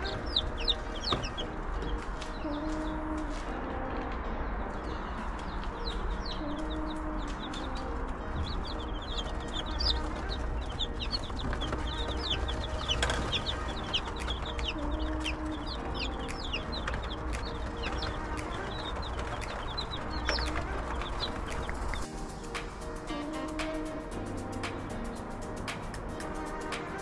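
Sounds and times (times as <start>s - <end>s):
chicks peeping: 0.0s - 3.5s, 4.6s - 22.1s.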